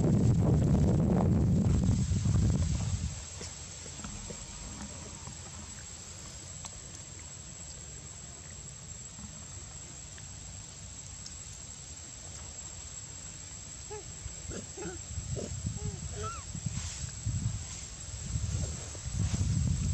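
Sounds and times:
steady low rumble: 0:00.0 - 0:07.4.

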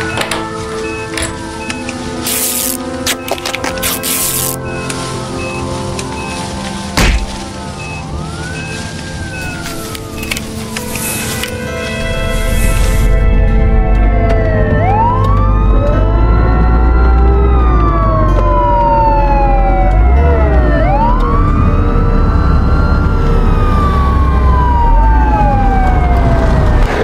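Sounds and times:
ambulance siren wailing: 0:00.0 - 0:27.0
low rumble: 0:10.5 - 0:27.0.

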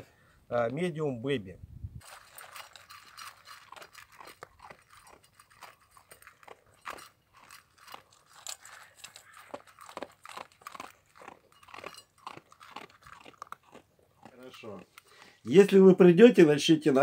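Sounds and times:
dogs crunching dry kibble: 0:02.0 - 0:15.5.

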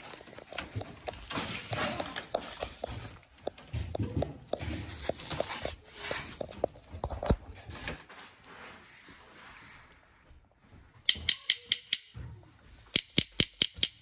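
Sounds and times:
hands knocking and clicking: 0:13.0 - 0:14.0.

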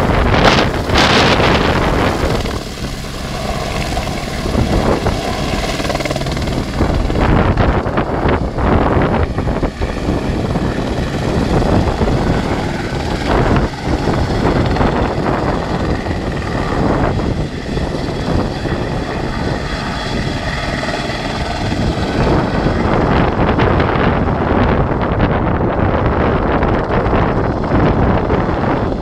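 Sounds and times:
helicopter turbine and rotor: 0:00.0 - 0:29.0.

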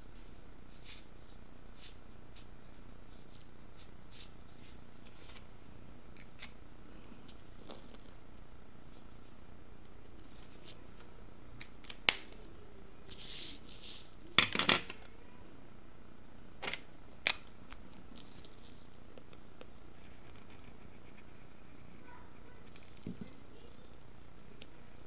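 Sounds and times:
marker scratching on paper: 0:00.7 - 0:01.2, 0:01.8 - 0:02.5, 0:03.8 - 0:05.4, 0:20.0 - 0:22.8.

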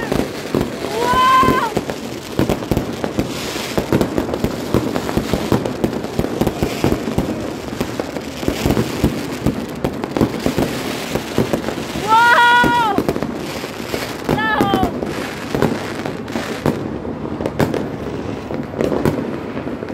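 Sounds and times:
woman shouting: 0:00.0 - 0:01.8, 0:12.0 - 0:13.0, 0:14.3 - 0:15.0
fireworks and firecrackers crackling: 0:00.0 - 0:19.9.

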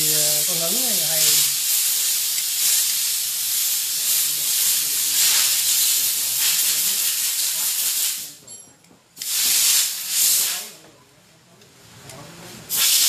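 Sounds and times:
loud steady hiss: 0:00.0 - 0:08.4, 0:09.2 - 0:10.8, 0:12.6 - 0:13.0.

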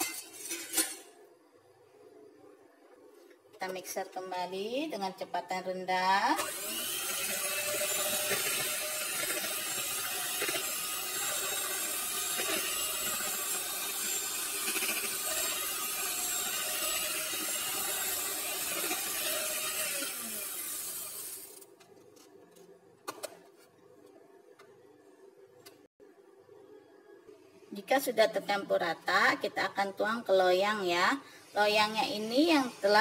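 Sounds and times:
electric hand mixer running: 0:06.4 - 0:21.6.

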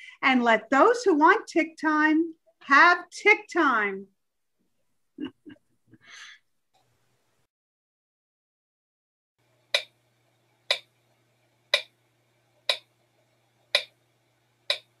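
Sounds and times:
clock ticking: 0:09.7 - 0:10.0, 0:10.7 - 0:10.9, 0:11.7 - 0:11.9, 0:12.7 - 0:12.9, 0:13.7 - 0:14.0, 0:14.7 - 0:15.0.

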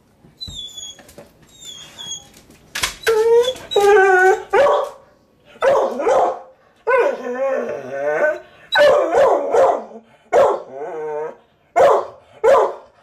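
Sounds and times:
dog barking: 0:04.5 - 0:05.0, 0:05.6 - 0:06.5, 0:08.8 - 0:10.7, 0:11.8 - 0:13.0.

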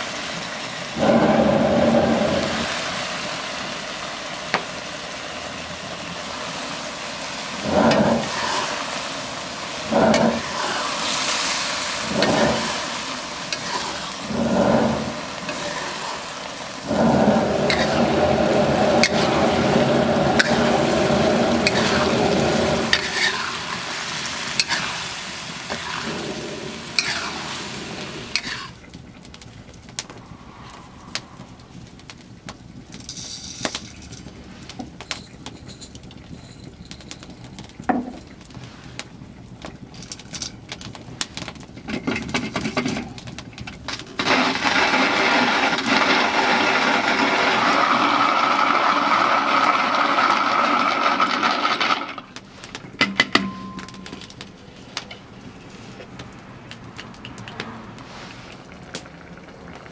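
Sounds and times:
wood fire crackling: 0:00.0 - 0:59.9
coffee mill grinding: 0:16.8 - 0:23.6, 0:25.7 - 0:27.4, 0:44.2 - 0:52.3.

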